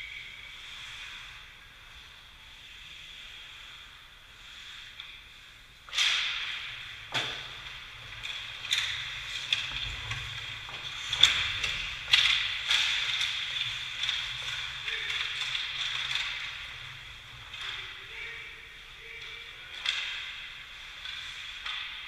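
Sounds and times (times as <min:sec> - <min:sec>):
skate blades scraping ice: 0:00.2 - 0:19.1
sticks and puck striking: 0:04.8 - 0:22.0.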